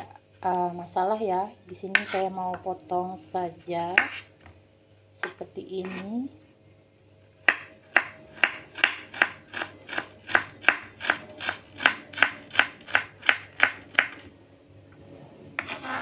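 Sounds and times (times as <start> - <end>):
knife chopping on wooden board: 3.9 - 4.3, 7.4 - 14.2.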